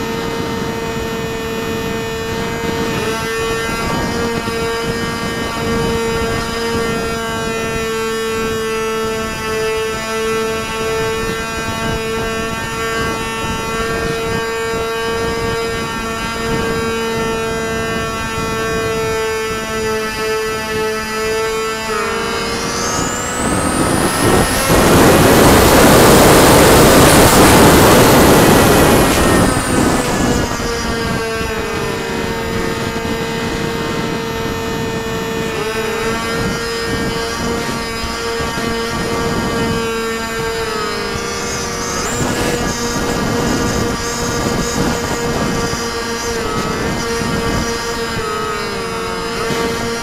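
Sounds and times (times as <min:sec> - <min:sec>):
model airplane motor humming: 0:00.0 - 0:50.0
wind buffeting microphone: 0:00.0 - 0:50.0
rushing air: 0:22.4 - 0:50.0.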